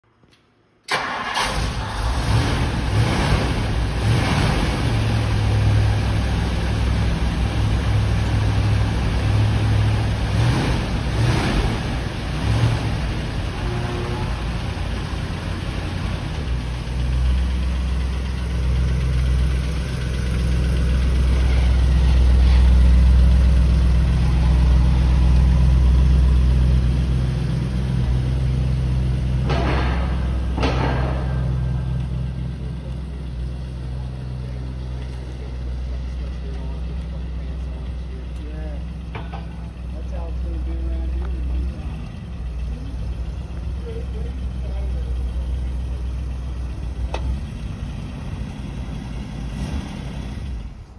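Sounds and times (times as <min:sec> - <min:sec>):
car engine starting and revving: 0:00.9 - 0:50.9
deep engine idle: 0:11.9 - 0:50.9.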